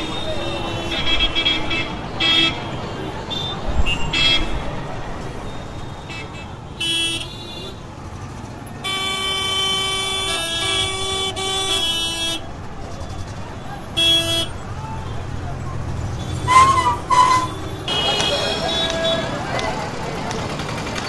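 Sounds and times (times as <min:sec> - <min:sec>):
vehicle horns honking: 0:00.0 - 0:04.6, 0:05.8 - 0:07.8, 0:08.8 - 0:12.5, 0:13.9 - 0:15.2, 0:16.2 - 0:19.4
busy road traffic: 0:00.0 - 0:21.0.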